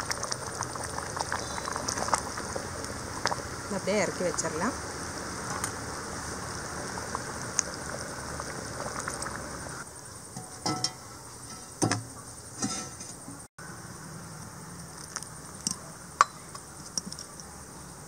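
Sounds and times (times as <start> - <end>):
gravy bubbling in a pot: 0.0 - 9.9
cookware knocks and clinks: 10.4 - 13.1.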